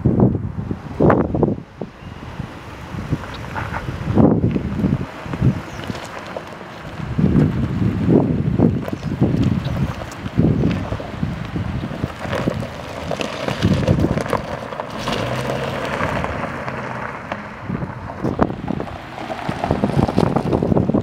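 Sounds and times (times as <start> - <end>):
wind buffeting microphone: 0.0 - 21.0
car engine running: 2.9 - 21.0
tyres rolling over gravel: 3.1 - 21.0.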